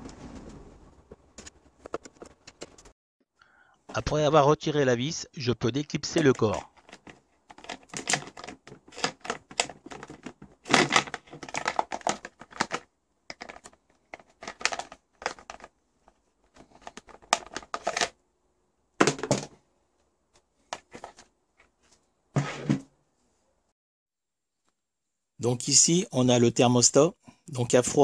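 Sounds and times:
plastic housing clicking and rattling: 0:06.7 - 0:18.2.

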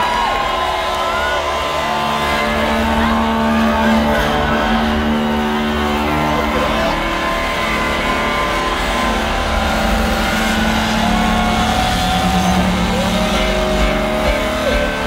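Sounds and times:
engine revving: 0:00.0 - 0:15.0.

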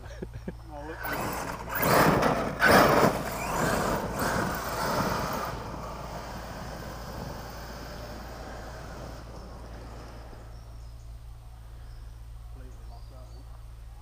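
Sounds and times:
rc truck motor and tyres on dirt: 0:00.1 - 0:11.3.

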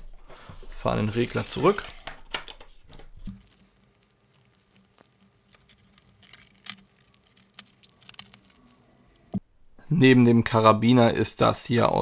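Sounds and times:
plastic clicks and rubbing: 0:01.6 - 0:03.6.

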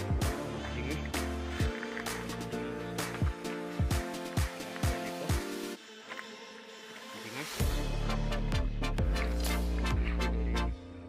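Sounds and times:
kick drum beat: 0:00.0 - 0:00.6, 0:01.6 - 0:02.0, 0:03.2 - 0:05.5.

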